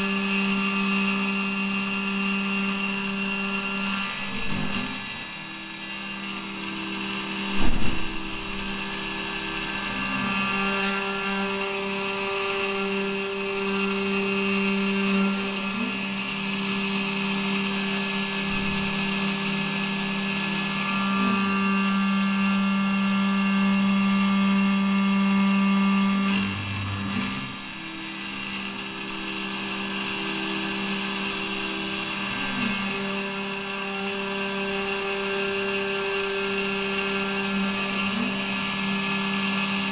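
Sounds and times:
milling machine cutting metal: 0.0s - 39.9s
single knock: 7.5s - 8.8s.

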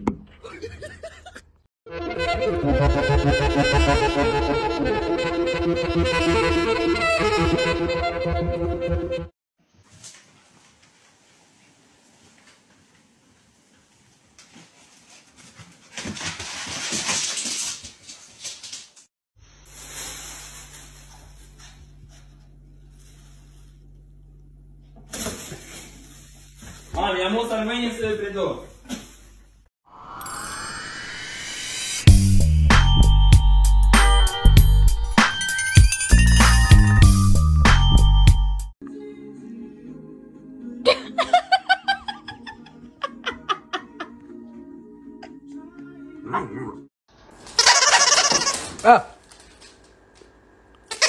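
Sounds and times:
background music with beat: 32.1s - 38.7s.

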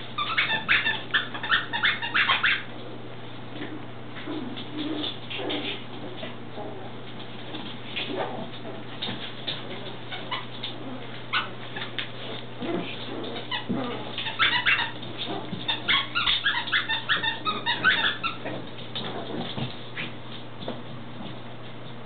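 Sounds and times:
puppies yipping and squealing: 0.0s - 2.7s, 10.0s - 12.4s, 13.1s - 18.6s.

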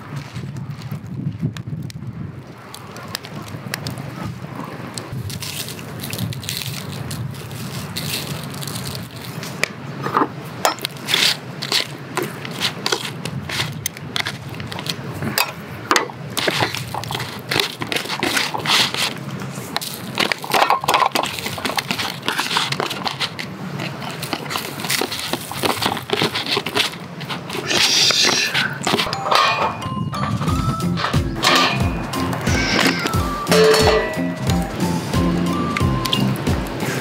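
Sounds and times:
plastic tray crinkling: 16.4s - 29.1s.

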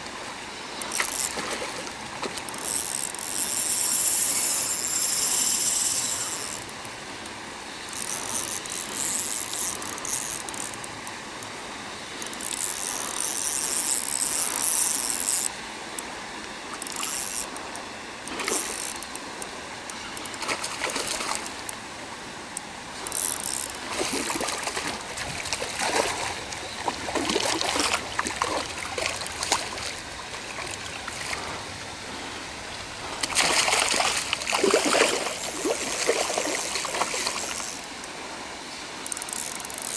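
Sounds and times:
fishing reel running: 0.8s - 1.4s, 2.4s - 6.7s, 7.9s - 10.9s, 12.2s - 15.5s, 16.8s - 17.8s, 18.5s - 19.2s, 23.0s - 24.7s, 34.6s - 37.9s, 39.0s - 39.9s.

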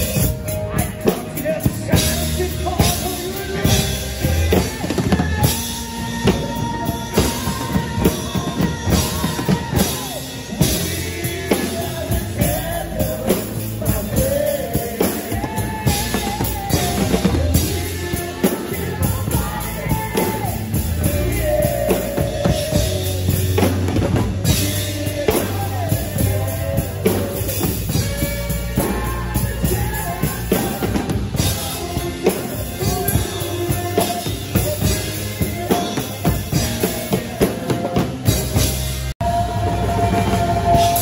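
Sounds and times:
backing music with melody: 0.0s - 41.0s
rock drumming on drum kit: 0.0s - 41.0s.

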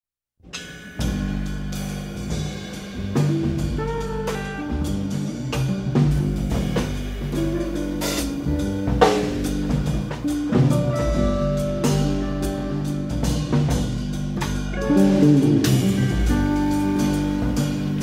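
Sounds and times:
drum kit: 0.4s - 18.0s
sustained low bass notes: 1.1s - 18.0s.

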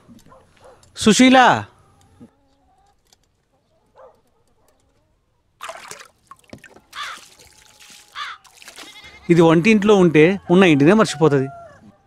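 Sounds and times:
water splashing on stone: 5.6s - 9.1s.

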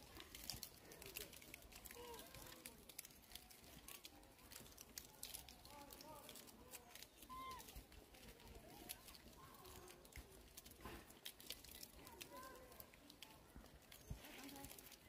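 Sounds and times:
small clicks: 0.0s - 15.0s
monkeys squeaking and chirping: 6.7s - 7.9s.

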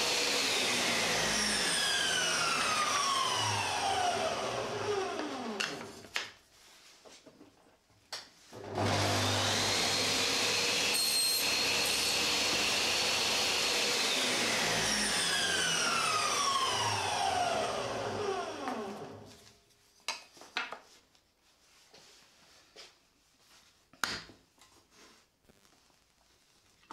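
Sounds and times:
saw cutting wood: 0.0s - 5.9s, 8.6s - 19.3s
table saw whine: 0.0s - 6.0s, 8.6s - 19.4s.

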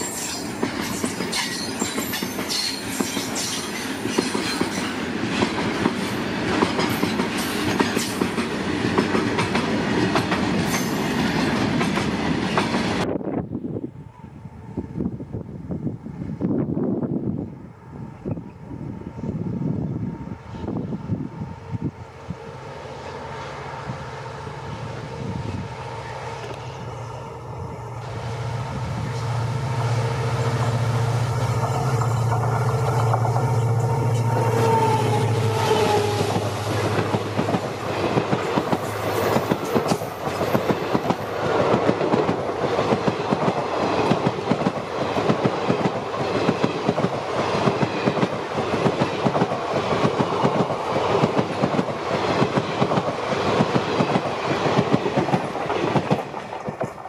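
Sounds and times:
train wheels clicking over rail joints: 0.0s - 13.0s, 31.4s - 57.0s
diesel locomotive engine drone: 0.0s - 57.0s.

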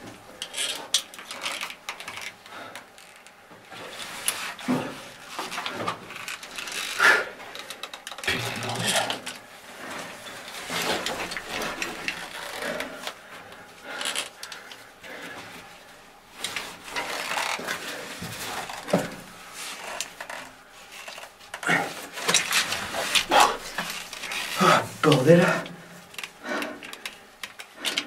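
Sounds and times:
gear scraping against rock: 16.4s - 25.5s.

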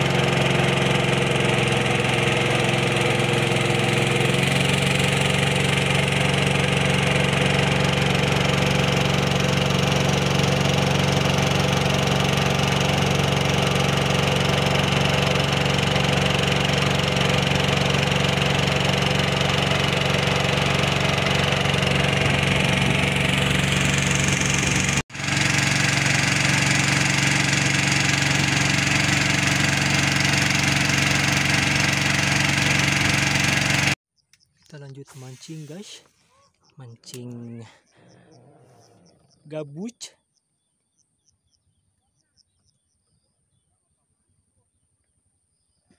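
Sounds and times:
boat engine running: 0.0s - 40.1s.

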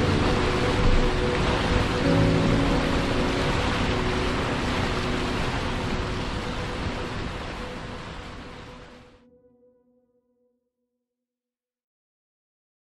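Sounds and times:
river water rushing: 0.0s - 9.2s.

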